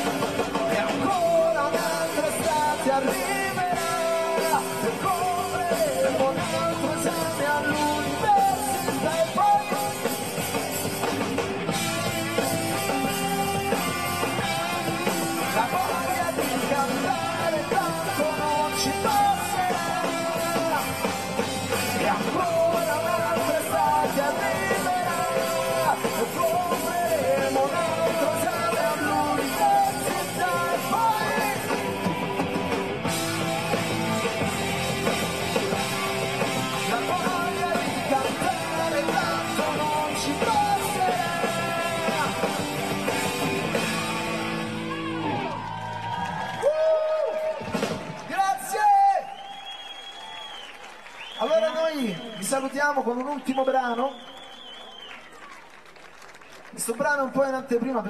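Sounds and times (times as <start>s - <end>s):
lead vocal singing: 0.0s - 10.5s, 13.0s - 32.9s, 34.3s - 43.9s
live rock band playing: 0.0s - 46.5s, 47.2s - 48.3s.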